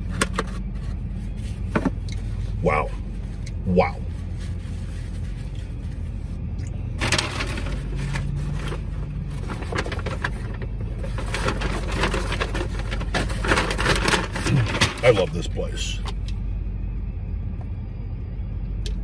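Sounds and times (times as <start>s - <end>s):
low hum in car cabin: 0.0s - 19.0s
paper bag rustling and crinkling: 4.0s - 6.3s, 7.0s - 15.5s.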